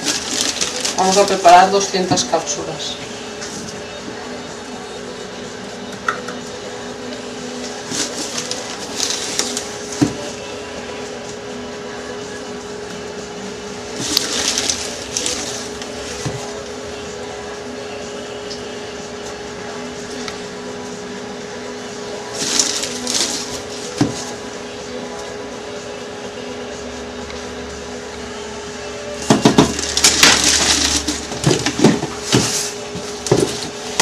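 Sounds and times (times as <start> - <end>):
plastic rustling and scraping: 0.0 - 2.5, 7.6 - 10.4, 13.9 - 16.7, 22.3 - 24.4, 29.2 - 34.0
steady machine hum: 0.0 - 34.0.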